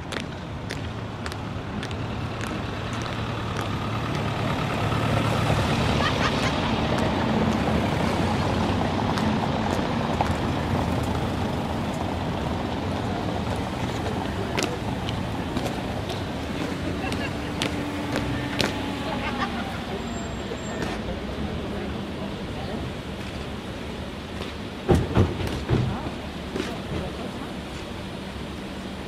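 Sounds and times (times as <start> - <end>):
marching boots on cobblestones: 0.0 - 19.5, 23.0 - 28.2
van driving past: 1.0 - 23.6.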